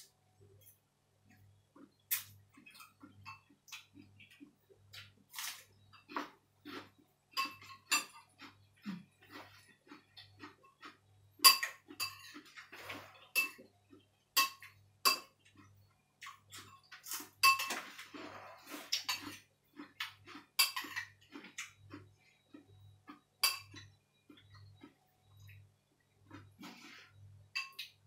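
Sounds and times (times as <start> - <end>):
cutlery clinking on ceramic bowl: 7.3 - 8.5, 10.7 - 13.7, 14.4 - 15.4, 16.5 - 18.2, 19.0 - 19.4, 20.0 - 21.2, 23.4 - 24.5, 27.5 - 28.0.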